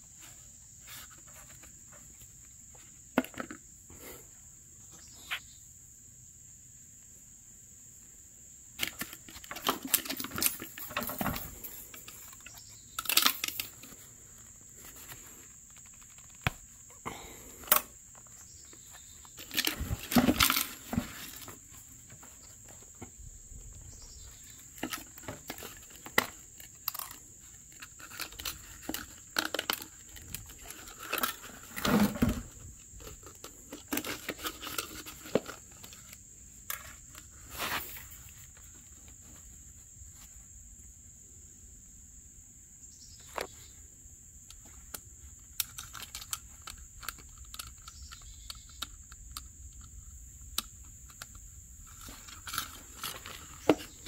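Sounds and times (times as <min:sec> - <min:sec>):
crinkling scraping and tapping: 0:00.2 - 0:03.7, 0:08.8 - 0:40.3, 0:44.5 - 0:54.0.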